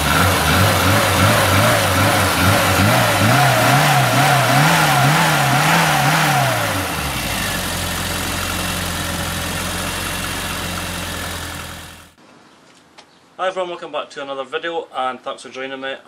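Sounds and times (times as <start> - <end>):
engine revving and idling: 0.0 - 12.2.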